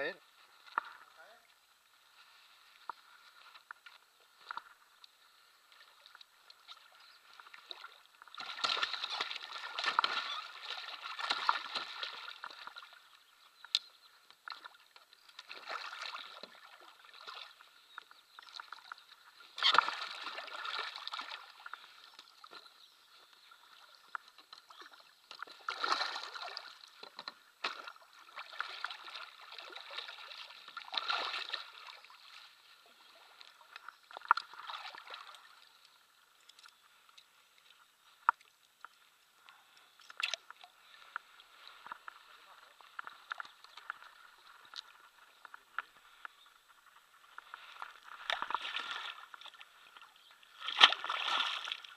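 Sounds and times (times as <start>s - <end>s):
fish splashing in water: 6.6s - 13.0s, 14.5s - 17.6s, 18.4s - 22.7s, 23.5s - 32.4s, 50.5s - 51.9s.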